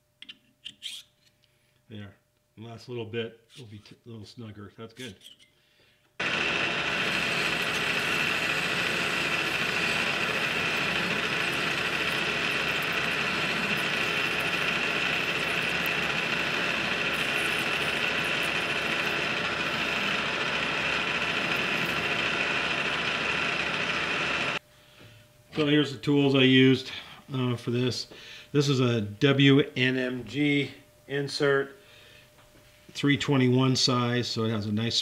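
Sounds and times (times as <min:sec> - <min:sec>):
metal lathe cutting steel: 0:06.2 - 0:24.6.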